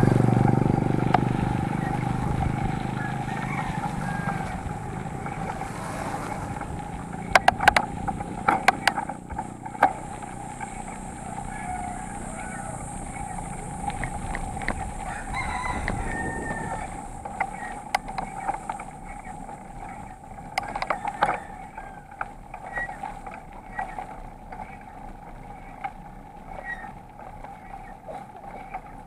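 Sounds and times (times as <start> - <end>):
wind noise: 0.0 - 27.0
bicycle road noise: 0.0 - 29.0
rattling clicks: 0.3 - 29.0
rooster crowing: 1.6 - 6.7, 10.4 - 14.1, 14.7 - 18.5, 20.5 - 23.0.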